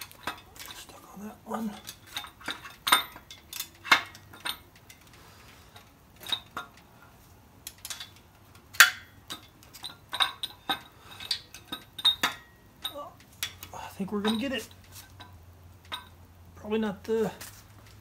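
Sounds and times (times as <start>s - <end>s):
metal clinks and knocks: 0.0s - 16.3s.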